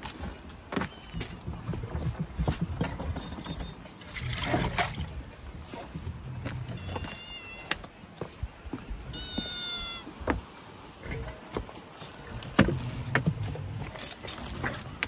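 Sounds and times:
cat meowing: 6.8s - 7.8s, 9.1s - 10.1s.

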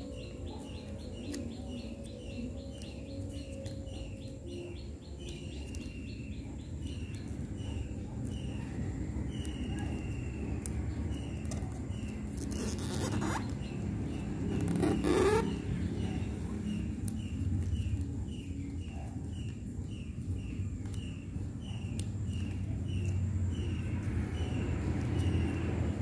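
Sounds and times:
paper being folded and creased: 11.4s - 15.5s.

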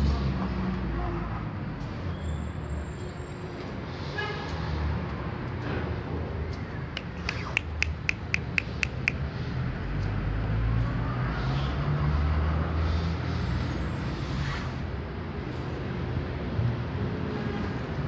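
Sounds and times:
street traffic rumble: 0.0s - 18.0s
sharp even clicks: 7.0s - 9.2s.

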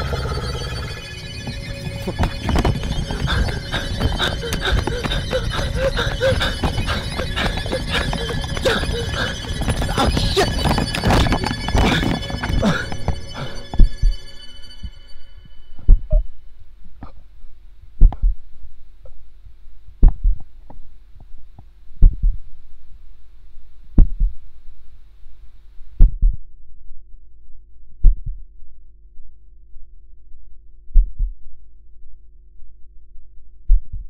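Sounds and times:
steady low hum: 0.0s - 26.4s
heartbeat thumps: 1.4s - 14.3s, 15.8s - 16.3s, 18.0s - 18.5s, 20.0s - 20.6s, 22.0s - 22.6s, 24.0s - 24.5s.

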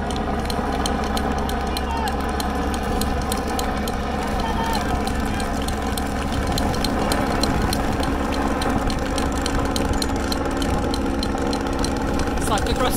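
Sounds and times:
engine running at low revs: 0.0s - 12.9s
sharp clicks and rattles: 0.0s - 12.9s.

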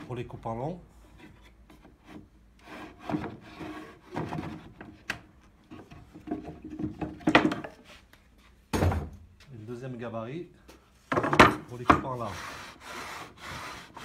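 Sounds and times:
wood scraping on wood: 1.0s - 8.1s, 11.2s - 14.0s.

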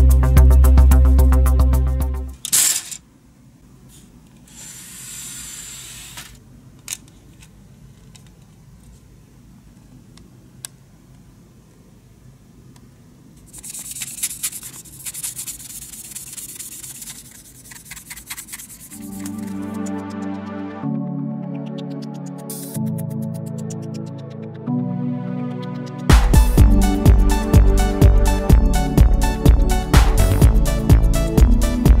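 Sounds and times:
plastic parts rustling and clicking: 2.4s - 3.0s, 6.0s - 9.0s
sanding sponge rasping on plastic: 13.5s - 19.4s.

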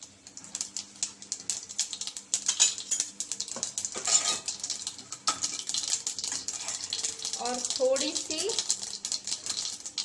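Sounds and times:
seeds crackling in hot oil: 0.0s - 10.0s
spoon clinking in steel tin: 4.0s - 4.4s.

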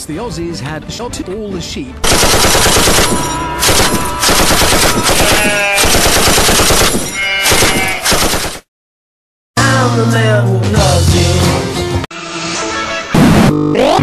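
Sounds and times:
automatic gunfire: 2.0s - 8.6s.

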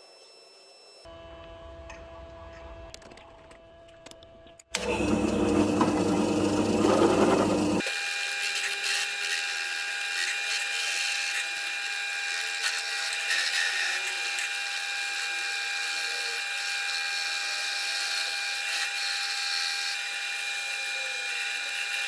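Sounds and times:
drill press motor whine: 0.0s - 22.0s
disc grinding steel: 4.8s - 7.9s.

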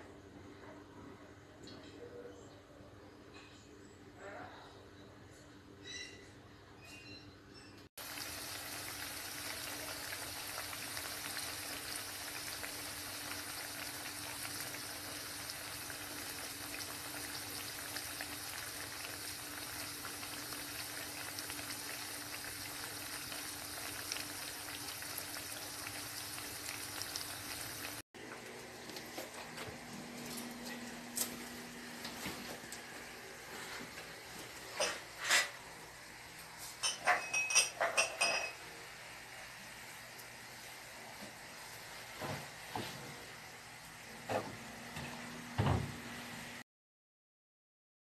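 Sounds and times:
food sizzling in hot oil: 8.0s - 28.0s.

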